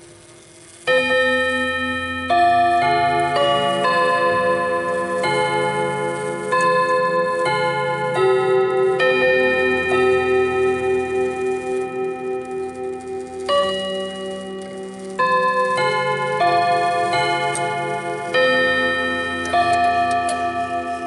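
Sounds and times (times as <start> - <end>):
clock chime rods melody: 0.8 - 21.0.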